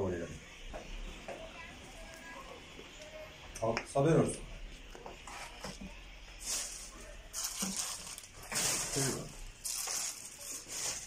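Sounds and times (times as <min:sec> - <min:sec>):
plastic packaging crinkling: 0:06.4 - 0:11.0.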